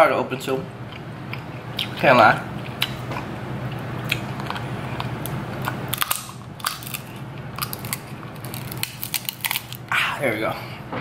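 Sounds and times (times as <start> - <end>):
steady low hum: 0.0 - 11.0
crab shell cracking and crunching: 4.0 - 10.0.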